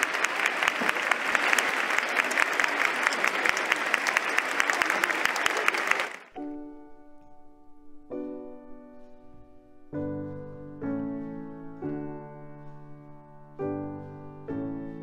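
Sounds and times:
crowd applauding: 0.0s - 6.4s
soft keyboard chord: 6.4s - 15.0s.

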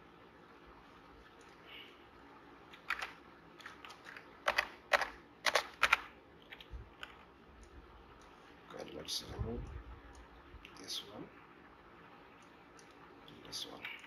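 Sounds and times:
keyboard and mouse clicks: 2.7s - 8.3s.

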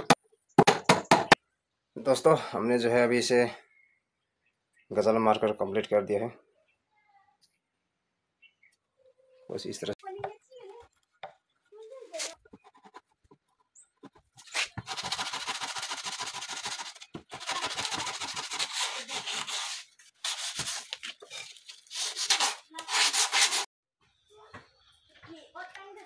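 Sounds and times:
sanding wood rasping: 12.1s - 13.1s, 14.0s - 20.8s, 21.9s - 23.7s.

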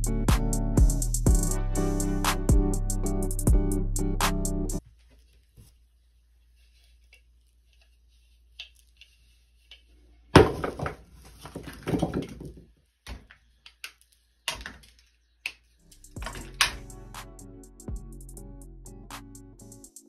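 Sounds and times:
clay pot cracking: 5.0s - 16.8s
clay pieces clacking: 10.6s - 16.8s.

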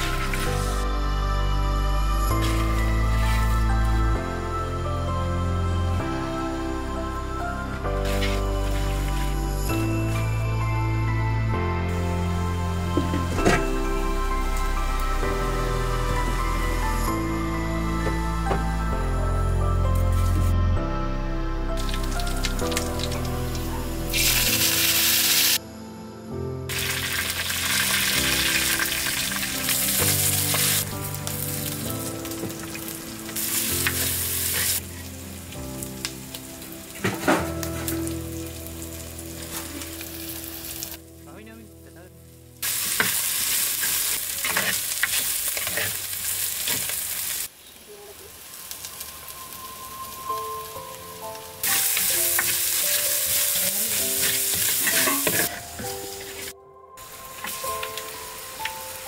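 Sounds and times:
spices sizzling in hot oil: 0.0s - 0.8s, 21.8s - 25.6s, 26.7s - 41.1s, 42.2s - 59.0s.

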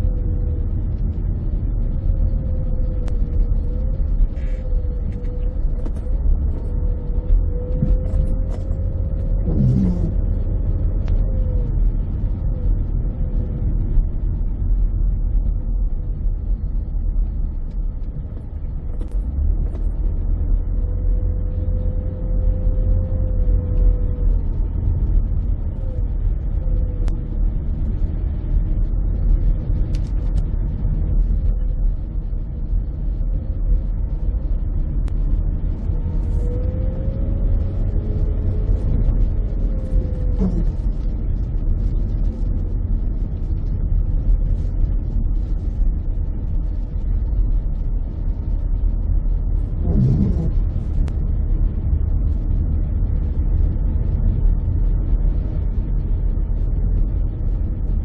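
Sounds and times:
engine and tyre rumble: 0.0s - 58.0s
thin wavering whine: 0.0s - 58.0s.

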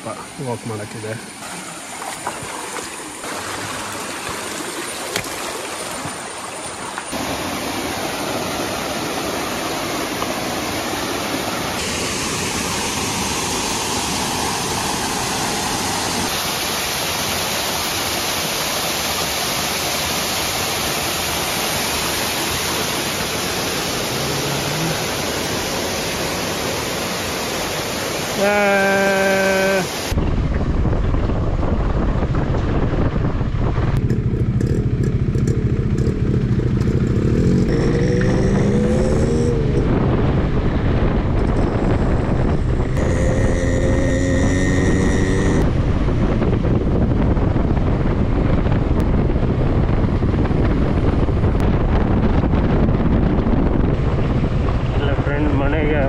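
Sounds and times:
waterfall rushing: 0.0s - 30.2s, 36.0s - 45.9s
low steady rumble: 30.2s - 55.5s.

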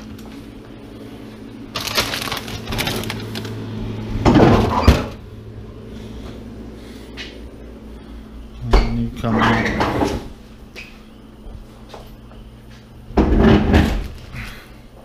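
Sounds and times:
items rattling in a freezer: 0.0s - 5.2s, 13.1s - 14.8s.

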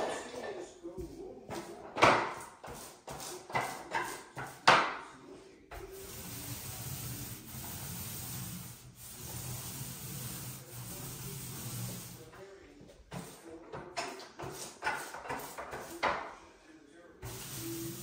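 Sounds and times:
paint roller swishing on wall: 1.0s - 4.7s, 5.8s - 13.6s, 14.3s - 16.1s, 17.2s - 18.0s.

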